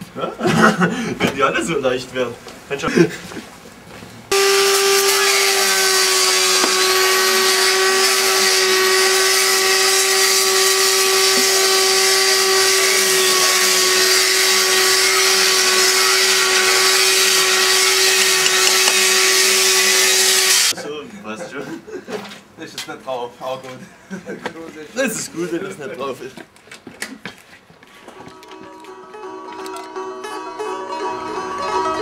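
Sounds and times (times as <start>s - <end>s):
power tool with dust extractor: 4.3s - 20.8s.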